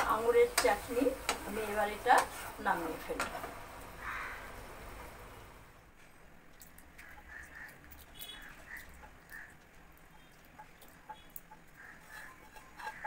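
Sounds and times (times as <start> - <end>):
wooden spatula scraping pan: 11.0 - 13.0.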